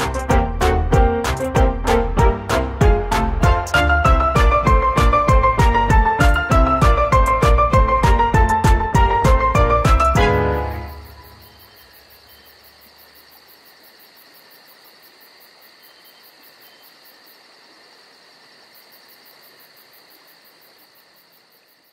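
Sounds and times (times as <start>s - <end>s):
crickets chirping: 10.3s - 21.9s.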